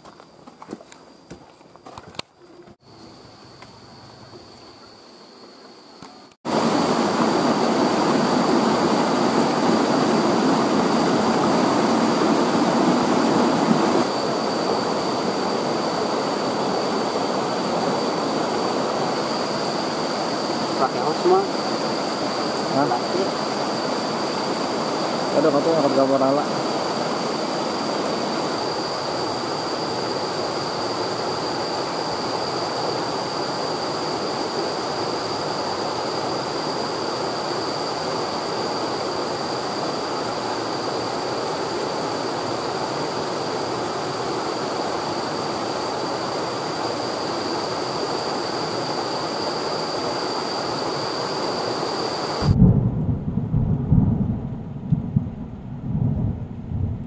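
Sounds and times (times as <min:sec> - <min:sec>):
falling water rushing: 0:06.5 - 0:52.6
deep rumbles: 0:52.5 - 0:57.0.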